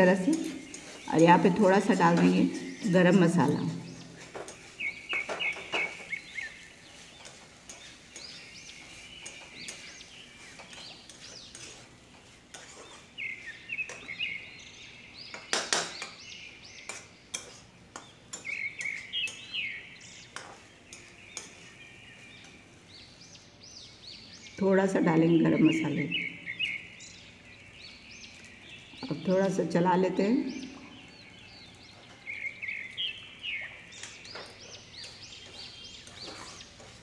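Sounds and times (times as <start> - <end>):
birds chirping: 0.0 - 37.0
spatula clattering against pan: 7.2 - 11.9, 16.8 - 19.5, 20.3 - 21.6.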